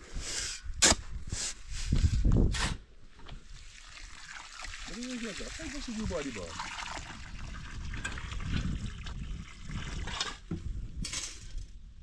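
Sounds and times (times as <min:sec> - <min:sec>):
running water: 0:03.4 - 0:10.2.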